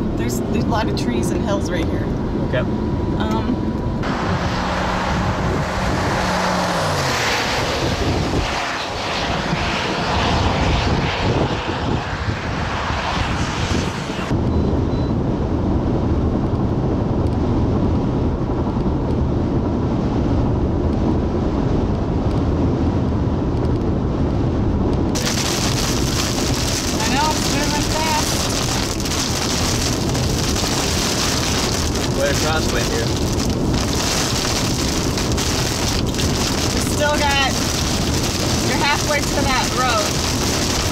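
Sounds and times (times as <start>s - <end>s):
car engine and tyres rumbling: 0.0s - 40.9s
low hum: 0.0s - 40.9s
wind gusting on microphone: 0.0s - 40.9s
rain hitting windshield: 25.2s - 40.9s.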